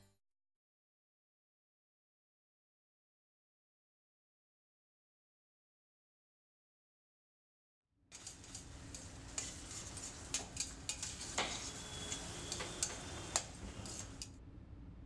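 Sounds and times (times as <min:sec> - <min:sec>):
frying sizzle: 0:08.2 - 0:14.2
metal spoon scraping a pan: 0:08.2 - 0:14.3.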